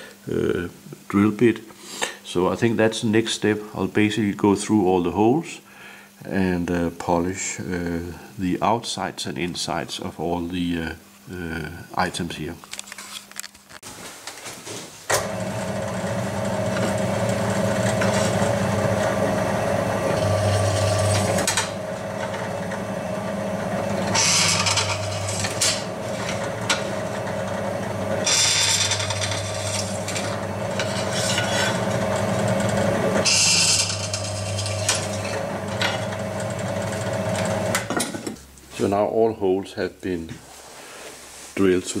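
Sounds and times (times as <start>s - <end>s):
drill press running: 15.1s - 37.9s
drill bit scraping into aluminium: 24.1s - 26.4s, 28.2s - 32.0s, 33.2s - 36.0s.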